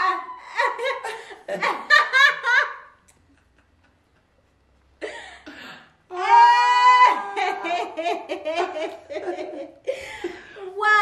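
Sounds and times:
adults laughing: 0:07.2 - 0:10.0.

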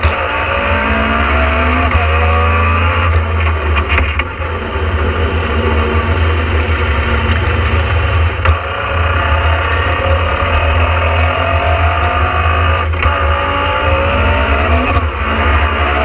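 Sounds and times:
rally car engine under load: 0:00.0 - 0:16.0.

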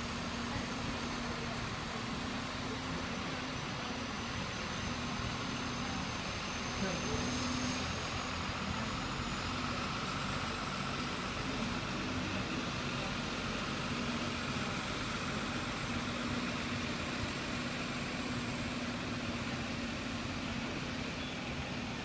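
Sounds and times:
street traffic noise: 0:00.0 - 0:22.0
vehicle engine hum: 0:00.0 - 0:22.0.

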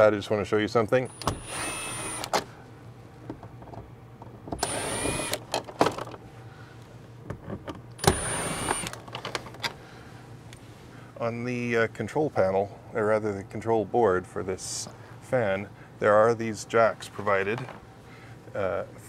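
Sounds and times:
cordless power driver whining: 0:01.1 - 0:02.5, 0:04.5 - 0:05.6, 0:08.0 - 0:09.0.

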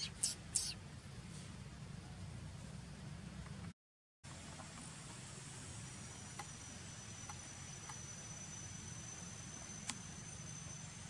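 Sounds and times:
faint outdoor hiss: 0:00.0 - 0:03.7, 0:04.3 - 0:11.0
insect drone: 0:04.3 - 0:11.0.

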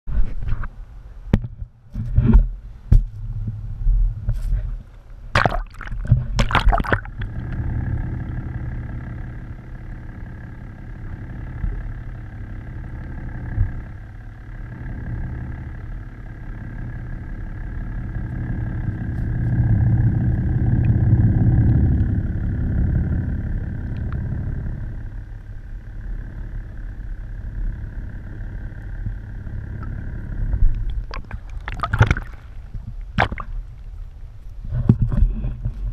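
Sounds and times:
boat engine underwater: 0:01.2 - 0:35.9
water splashes: 0:05.4 - 0:07.4, 0:30.7 - 0:33.9.

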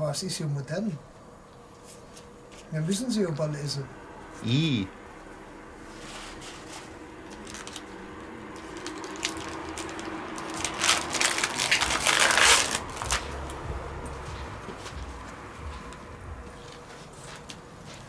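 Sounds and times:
faint steady hum: 0:00.0 - 0:18.0
plastic package crinkling: 0:07.2 - 0:13.6.

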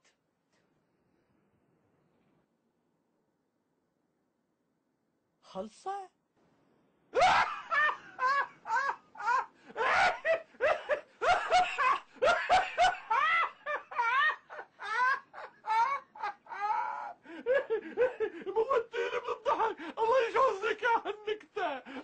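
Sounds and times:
person laughing heartily: 0:07.2 - 0:20.3.

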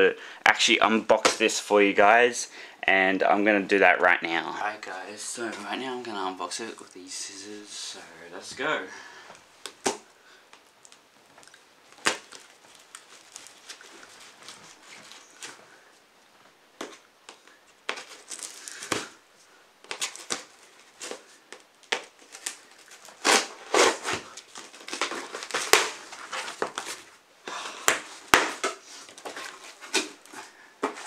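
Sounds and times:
cardboard crinkling and scraping: 0:11.9 - 0:15.7, 0:17.9 - 0:19.2, 0:19.9 - 0:27.2, 0:27.9 - 0:31.0
packing tape pulled off box: 0:17.9 - 0:19.2, 0:21.8 - 0:27.1.

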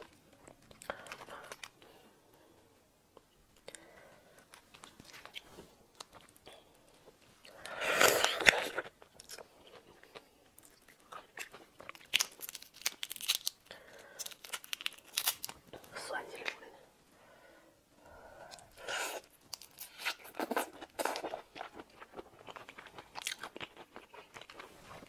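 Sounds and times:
shrimp shell crackling as peeled: 0:11.4 - 0:15.7.

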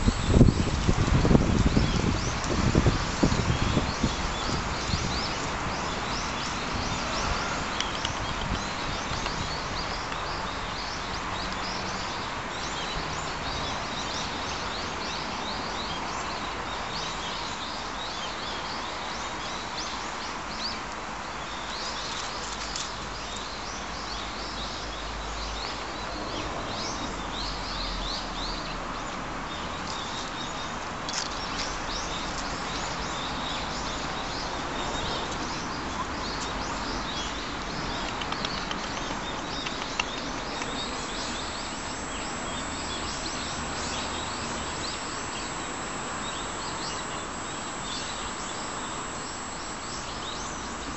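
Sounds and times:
small birds chirping: 0:00.0 - 0:20.8, 0:29.5 - 0:50.9
steady background hiss: 0:40.5 - 0:50.9.

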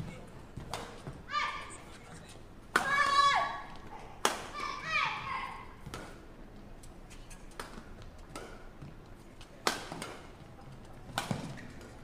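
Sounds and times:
rackets hitting shuttlecock: 0:00.0 - 0:01.2, 0:02.7 - 0:03.2, 0:04.2 - 0:04.8, 0:05.8 - 0:06.3, 0:07.5 - 0:08.9, 0:09.6 - 0:10.4, 0:11.1 - 0:12.0.

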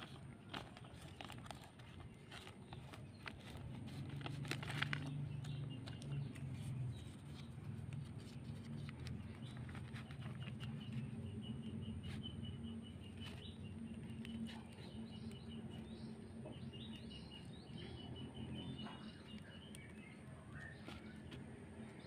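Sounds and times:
plastic sheet crinkling: 0:00.0 - 0:11.0.

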